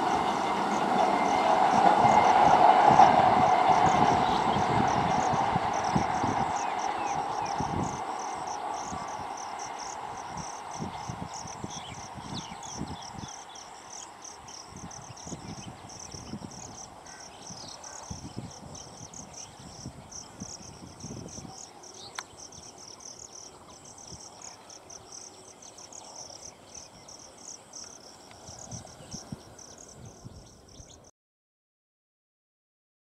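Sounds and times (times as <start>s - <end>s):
low rumbling wind gusts: 0.0s - 31.0s
insects chirping: 0.0s - 31.1s.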